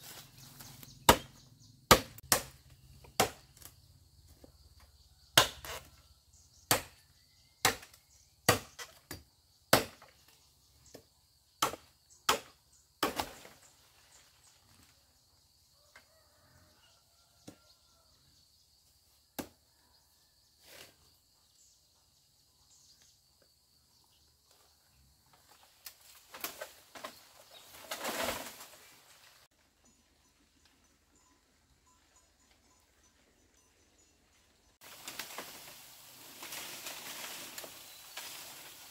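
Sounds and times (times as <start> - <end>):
blade chopping bamboo: 1.1 - 3.7, 5.4 - 5.9, 6.7 - 7.0, 7.6 - 9.1, 9.7 - 10.1, 11.6 - 13.6.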